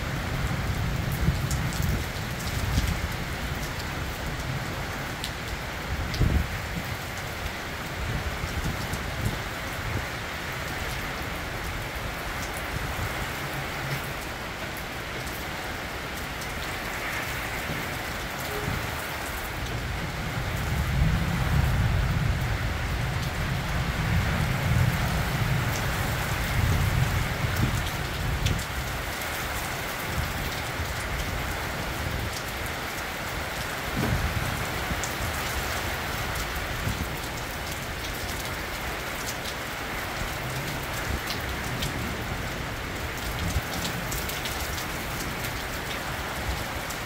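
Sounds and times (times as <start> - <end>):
heavy rain falling: 0.0 - 47.0
sharp raindrop ticks: 1.1 - 4.5, 25.6 - 29.3.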